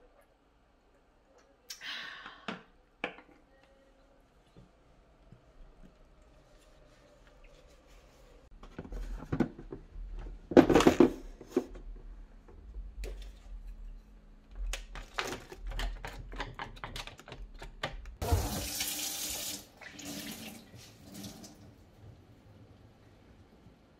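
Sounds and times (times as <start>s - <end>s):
plastic containers clattering: 8.6s - 11.7s.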